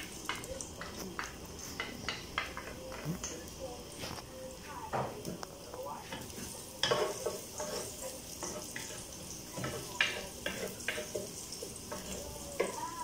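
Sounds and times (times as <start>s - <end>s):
garlic sizzling in hot oil: 0.0s - 13.0s
spatula scraping a pot: 6.2s - 13.0s.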